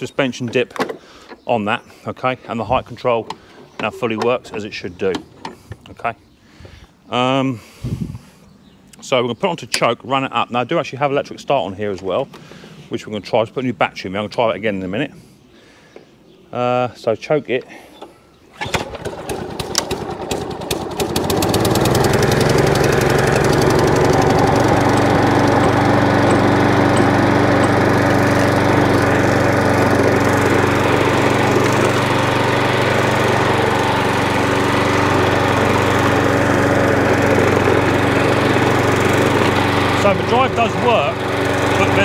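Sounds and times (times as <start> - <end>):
lawn mower engine running: 0.0 - 6.0, 17.7 - 42.0.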